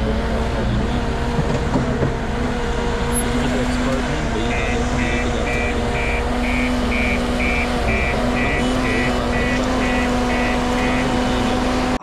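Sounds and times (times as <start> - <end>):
engine hum: 0.0 - 12.0
reversing alarm beeping: 4.4 - 12.0.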